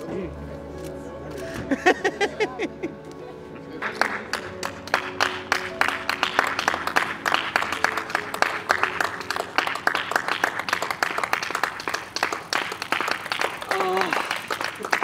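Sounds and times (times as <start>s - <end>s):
people clapping: 3.8s - 15.0s.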